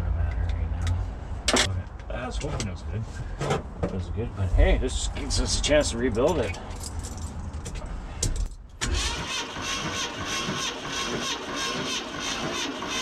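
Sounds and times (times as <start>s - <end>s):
engine cranking on starter: 8.8s - 13.0s.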